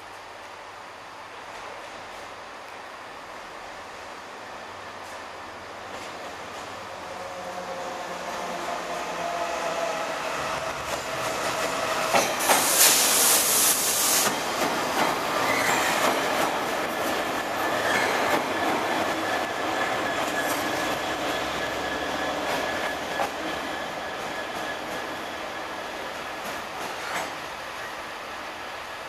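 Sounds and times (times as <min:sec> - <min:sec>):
diesel locomotive engines: 0:00.1 - 0:29.0
wheels clattering and squealing on rail: 0:05.9 - 0:28.2
loud hissing rush: 0:09.9 - 0:17.8.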